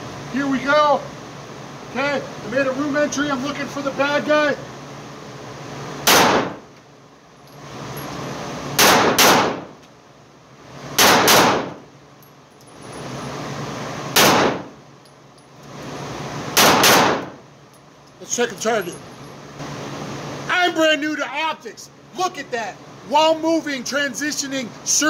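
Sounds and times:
pistol shots indoors: 6.0s - 6.6s, 8.8s - 9.7s, 11.0s - 11.8s, 14.2s - 14.7s, 16.6s - 17.4s.

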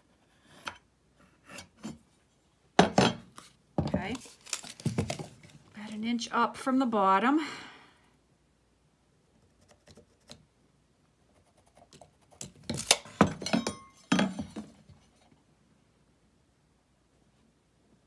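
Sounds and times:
metal tools clinking on wood: 13.2s - 14.4s.

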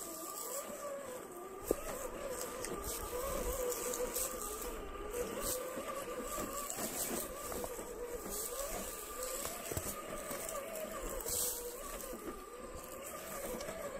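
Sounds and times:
toy car electric motor whining: 0.0s - 13.9s.

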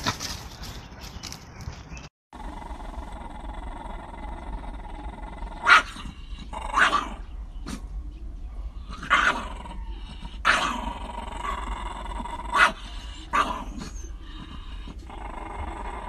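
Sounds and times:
dogs snarling and growling: 2.4s - 8.1s, 8.7s - 16.0s
dog barking: 5.6s - 6.0s, 6.8s - 7.8s, 12.5s - 13.7s.

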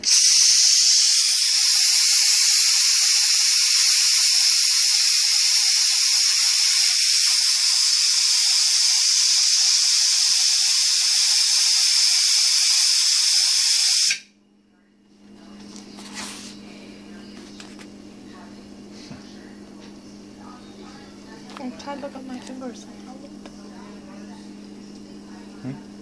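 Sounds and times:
steam hissing loudly: 0.0s - 14.2s.

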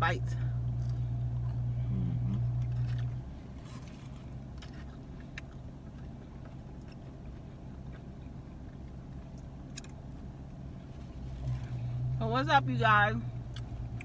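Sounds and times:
car cabin hum: 0.0s - 14.0s
chewing clicks: 4.5s - 8.1s.

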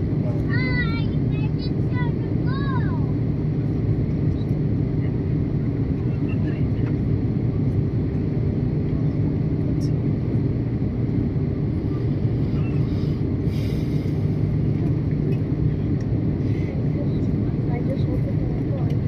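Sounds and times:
jet engines rumbling: 0.0s - 19.0s
rushing airflow: 8.3s - 17.6s.

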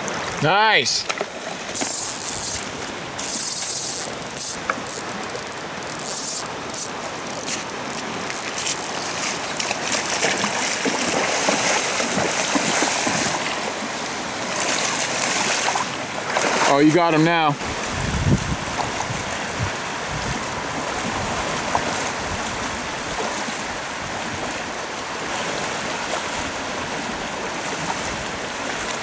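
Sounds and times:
waders splashing: 0.0s - 17.4s
fast river rushing: 0.0s - 29.0s
fly reel clicking: 1.7s - 10.0s.

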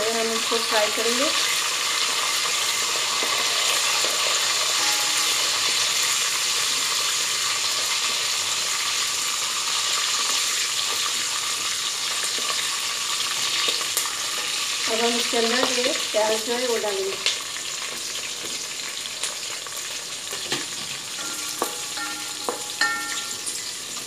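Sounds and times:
spices sizzling in hot oil: 0.0s - 24.0s.

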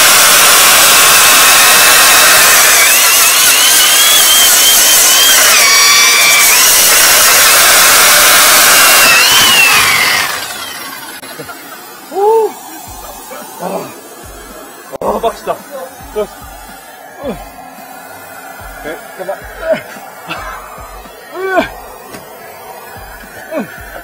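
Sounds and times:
short rising and falling tone: 0.0s - 11.3s
core drill boring through brick: 0.0s - 17.7s, 18.4s - 24.0s
vacuum cleaner sucking dust: 0.0s - 24.0s.

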